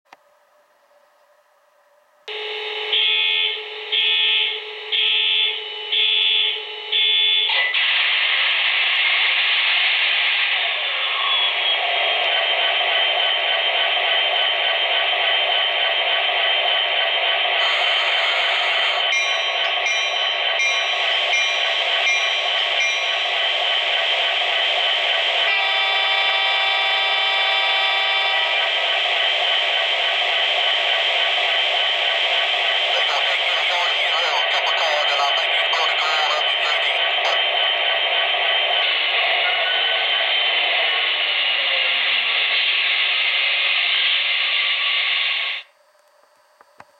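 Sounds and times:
locomotive horn chord: 2.3 - 7.5, 25.5 - 28.5
alarm-like beeps: 2.3 - 7.8, 11.3 - 38.0
simulated diesel engine running: 2.3 - 45.7
locomotive bell dinging: 17.6 - 23.7
diesel engine sound from small speaker: 30.8 - 38.1
click: 46.0 - 46.9.

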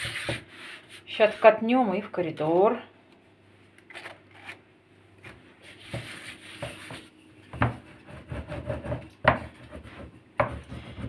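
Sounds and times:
rolling pin rubbing over dough: 0.0 - 1.6, 5.6 - 11.0.

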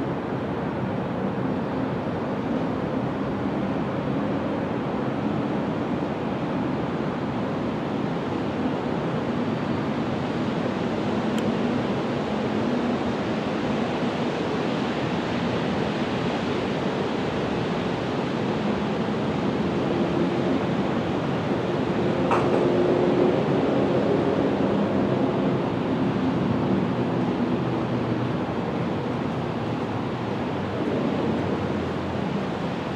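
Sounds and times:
steady rushing noise: 0.0 - 32.9.

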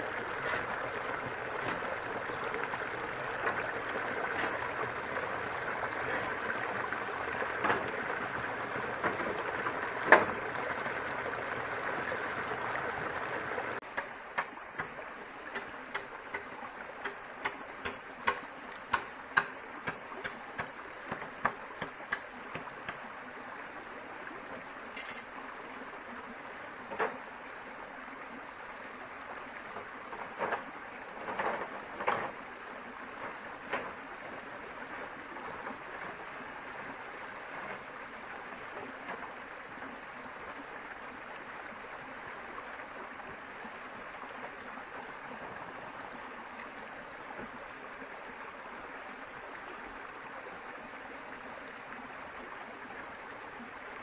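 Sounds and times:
sharp clicks and knocks: 13.8 - 23.0.

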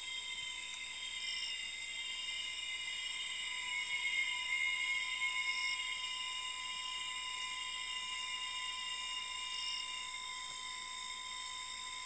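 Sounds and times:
insects calling: 0.0 - 5.8.

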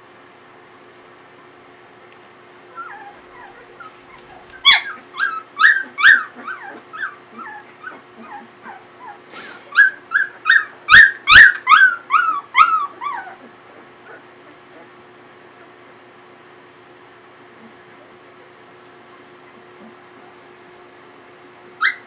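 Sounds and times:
puppies yipping and whimpering: 2.4 - 16.5, 21.0 - 22.0.

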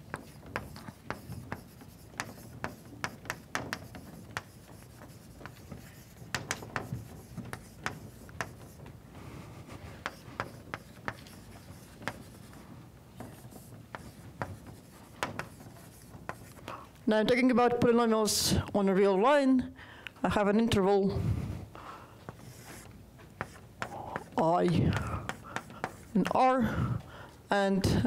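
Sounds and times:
chalk writing on a blackboard: 0.0 - 16.7, 22.3 - 26.5.

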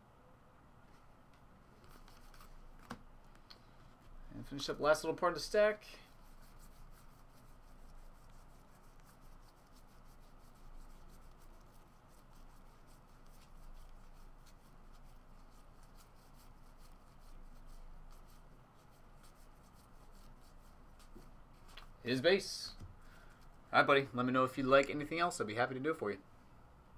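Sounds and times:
trading cards flipping: 1.8 - 3.5.

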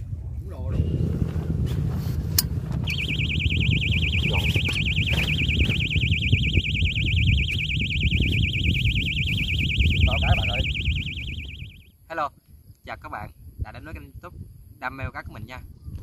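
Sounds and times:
low wind rumble: 0.0 - 16.0
warbling electronic alarm tone: 2.9 - 11.9.

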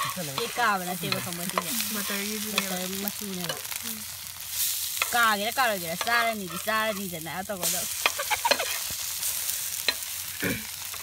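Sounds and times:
bread sizzling in a pan: 0.0 - 11.0
metal spatula scraping a pan: 4.5 - 11.0.

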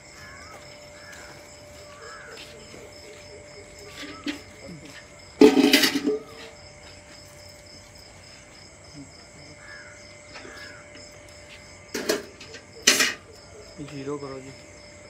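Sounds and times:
faint calls: 0.1 - 5.3, 8.9 - 11.5
metal bucket clanking down: 5.4 - 6.6, 12.0 - 13.3.

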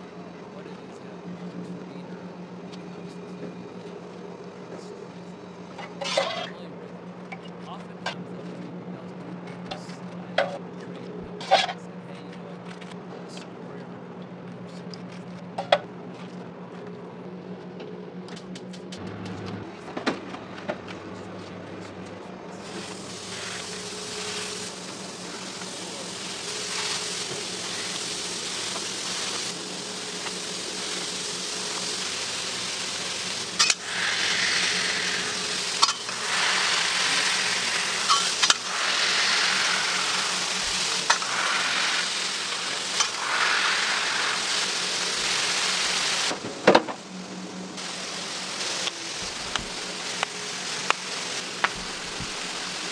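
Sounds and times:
steady low hum: 0.0 - 52.9
meat sizzling on a griddle: 22.6 - 52.9.

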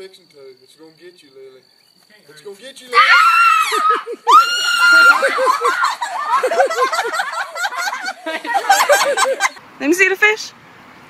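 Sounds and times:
girl screaming: 2.9 - 6.4
rapid laughter: 3.8 - 9.6.

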